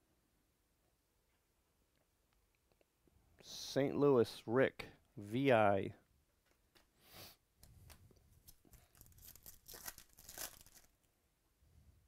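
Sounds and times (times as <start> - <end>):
foil wrapper tearing and crinkling: 8.5 - 11.0.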